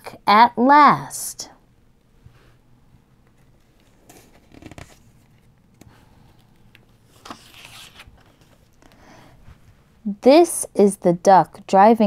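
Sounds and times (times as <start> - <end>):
book page turning: 3.3 - 8.8.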